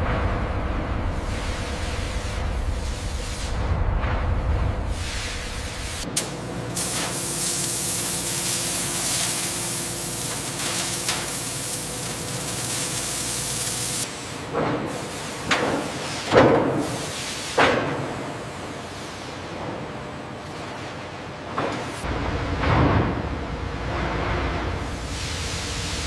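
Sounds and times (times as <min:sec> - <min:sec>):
laser cutter hissing: 0:04.9 - 0:14.3.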